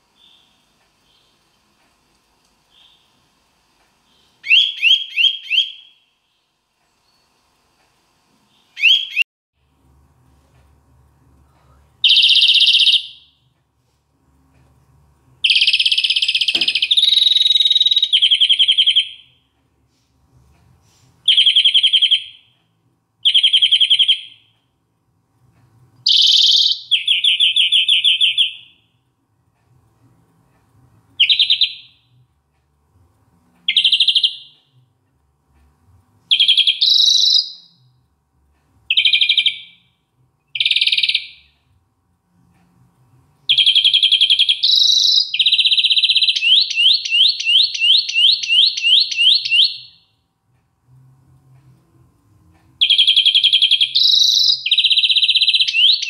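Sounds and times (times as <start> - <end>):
finch singing trills: 4.1 - 6.0, 8.5 - 9.2, 12.0 - 13.3, 15.4 - 19.3, 21.3 - 22.5, 23.2 - 24.5, 26.1 - 28.8, 31.2 - 32.1, 36.3 - 37.8, 38.9 - 39.8, 43.5 - 50.0, 52.8 - 56.0.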